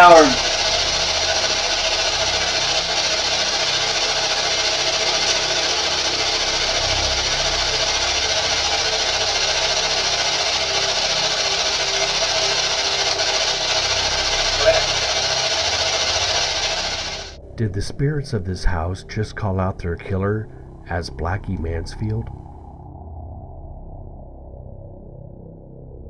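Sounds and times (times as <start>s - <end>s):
static hiss: 0.0s - 17.4s
faint steady hum: 0.0s - 22.8s.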